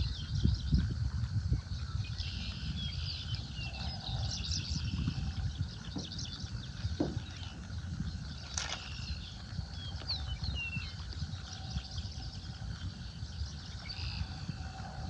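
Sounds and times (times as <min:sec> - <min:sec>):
wind rumble on microphone: 0:00.0 - 0:15.0
birds chirping: 0:01.6 - 0:15.0.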